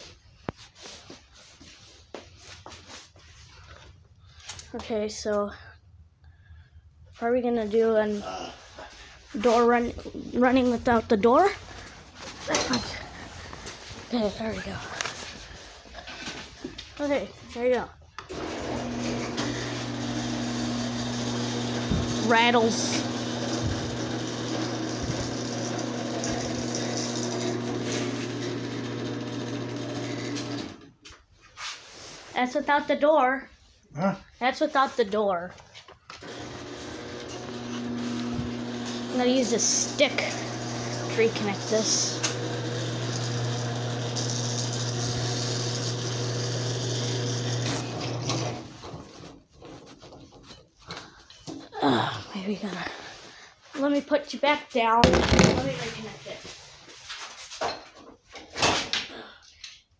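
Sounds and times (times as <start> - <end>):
garage door opener motor humming: 18.3 - 30.9, 36.2 - 48.8.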